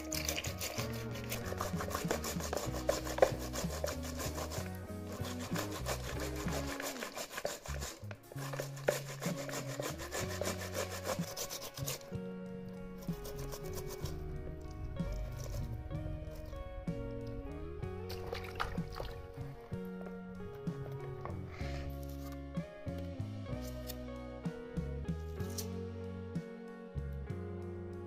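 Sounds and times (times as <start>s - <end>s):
tomatoes rasping on box grater: 0.0s - 12.1s
background music: 0.0s - 28.0s.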